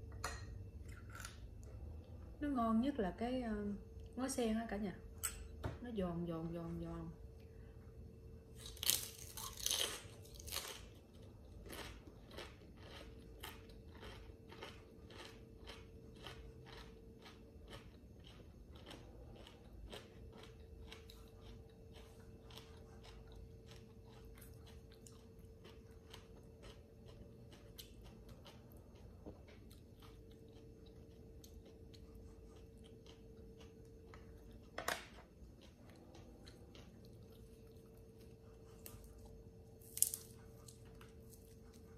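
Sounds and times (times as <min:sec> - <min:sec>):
crunching bites of cracker: 0:08.6 - 0:11.0, 0:11.6 - 0:17.9
chewing: 0:08.6 - 0:41.9.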